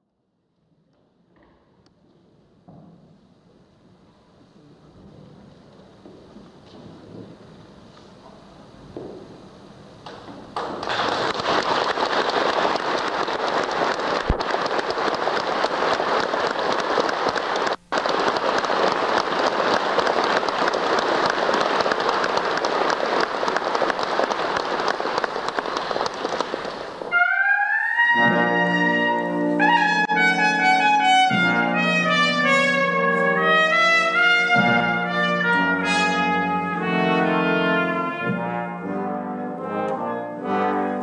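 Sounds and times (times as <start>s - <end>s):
audience applauding: 10.1s - 27.1s.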